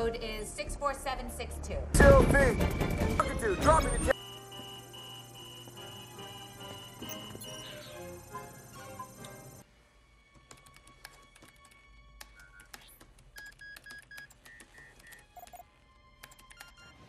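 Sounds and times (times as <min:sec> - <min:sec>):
short electronic beeps: 0:04.1 - 0:08.2
rapid keyboard typing: 0:10.5 - 0:15.6.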